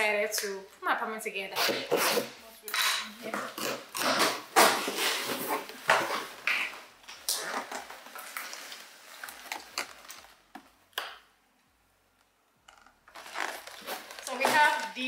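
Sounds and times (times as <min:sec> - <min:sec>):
cardboard packaging rustling: 0:07.6 - 0:10.6, 0:13.0 - 0:15.0.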